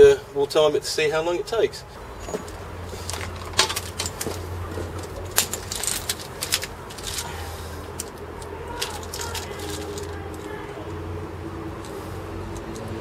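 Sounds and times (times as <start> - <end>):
clicks and light knocks: 2.2 - 11.0.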